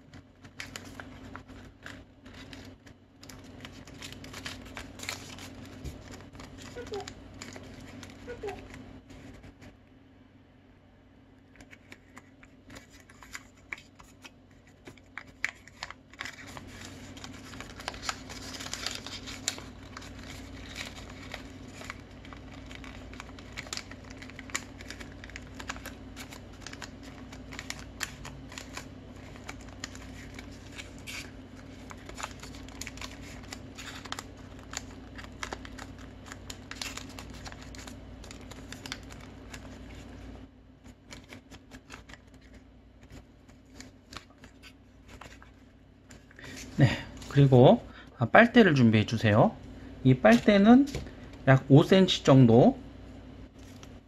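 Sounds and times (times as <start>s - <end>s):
paper folding and crinkling: 0.0s - 9.8s, 11.5s - 47.7s, 50.1s - 51.6s, 53.5s - 54.0s.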